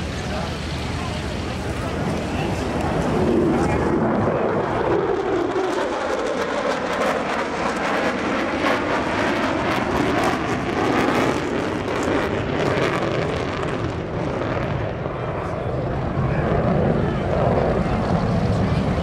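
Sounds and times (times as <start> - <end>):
jet bomber flying past: 0.0 - 19.0.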